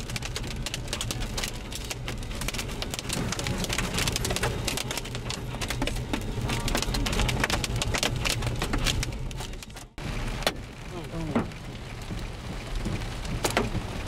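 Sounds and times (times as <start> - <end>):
rain and hail on a vehicle: 0.0 - 14.0
vehicle rumbling on the road: 0.0 - 14.0.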